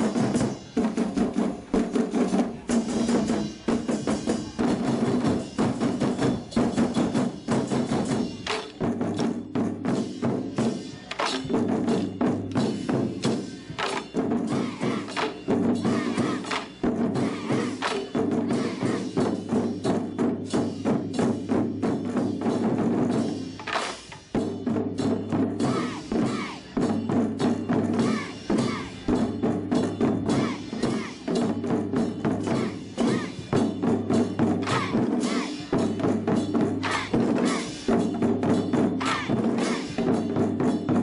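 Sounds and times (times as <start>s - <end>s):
taiko drums beating: 0.0s - 41.0s.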